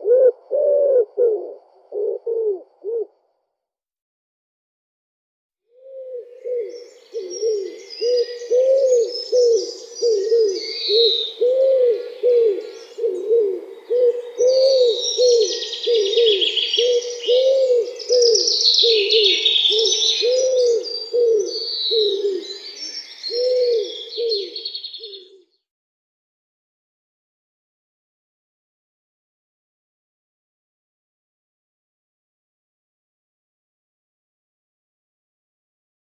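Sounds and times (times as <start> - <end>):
pigeon cooing: 0.0 - 3.2, 5.8 - 25.5
songbirds chirping: 6.0 - 25.6.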